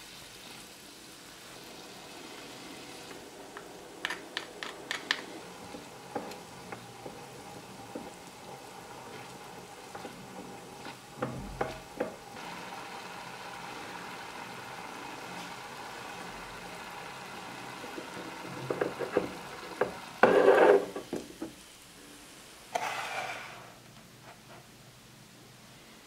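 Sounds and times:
food simmering and sizzling: 0.0s - 26.0s
scraping in metal wok: 20.2s - 21.1s, 22.7s - 23.8s.

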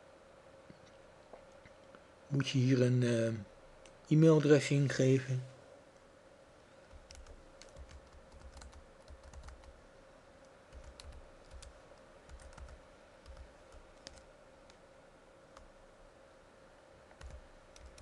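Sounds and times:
faint computer keyboard typing: 6.8s - 9.8s, 10.4s - 14.8s, 15.5s - 15.8s, 17.1s - 18.0s.

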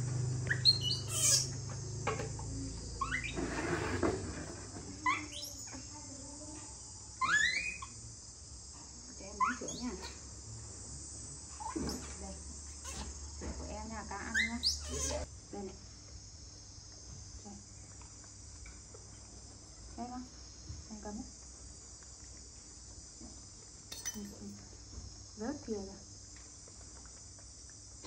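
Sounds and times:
insects chorus: 0.0s - 28.0s
young monkeys squeaking: 0.4s - 1.7s, 3.0s - 3.4s, 5.0s - 6.0s, 7.2s - 8.0s, 9.3s - 10.2s, 11.6s - 12.2s, 12.8s - 13.1s, 14.2s - 15.3s.

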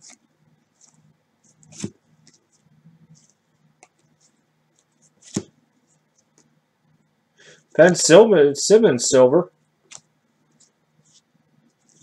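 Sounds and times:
cards shuffling: 0.8s - 5.6s, 9.9s - 12.0s.

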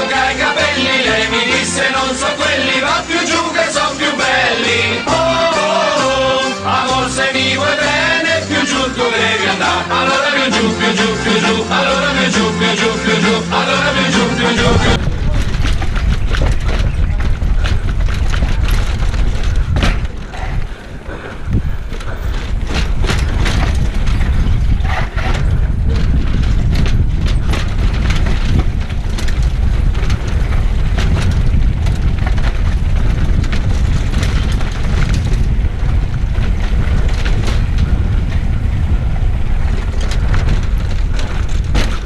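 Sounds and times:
bike rattling over cobblestones: 0.0s - 5.2s, 5.9s - 42.0s
wind rumble on microphone: 14.6s - 42.0s.

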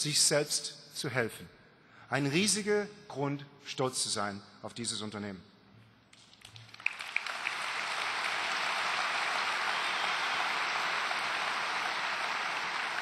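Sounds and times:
large audience applauding: 6.4s - 13.0s.

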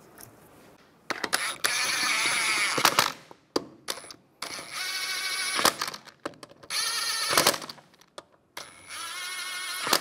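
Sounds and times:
impact wrench bursts: 8.6s - 10.0s.

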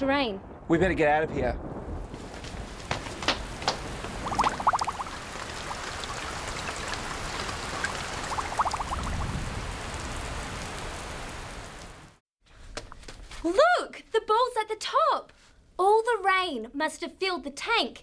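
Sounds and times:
rain pouring: 1.4s - 12.2s.

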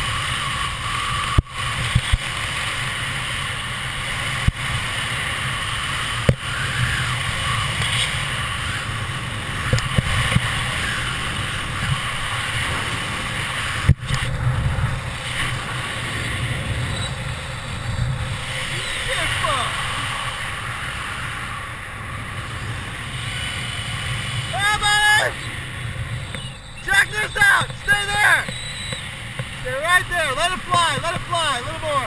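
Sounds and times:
wind rushing over microphone: 0.0s - 32.0s
sharp clicks: 27.6s - 29.6s.

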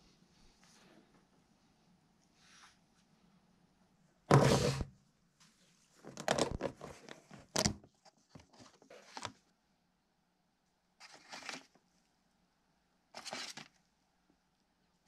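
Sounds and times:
plastic box clicking and crackling: 6.1s - 7.8s
paper envelopes rustling: 11.0s - 11.8s, 13.2s - 13.8s.

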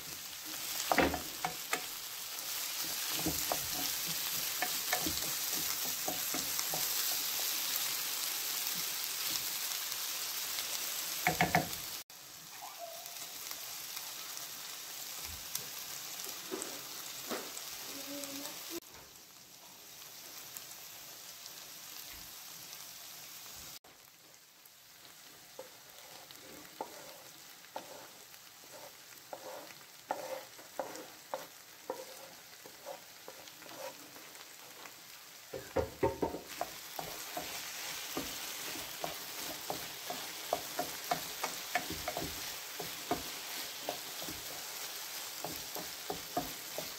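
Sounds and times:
vegetables sizzling in oil: 0.0s - 46.9s
spatula scraping pan: 0.5s - 7.9s, 25.6s - 35.0s, 35.6s - 46.9s
wooden spatula knocking on pan: 0.8s - 1.9s, 2.8s - 7.2s, 11.2s - 11.8s, 35.5s - 44.6s, 45.3s - 46.9s.

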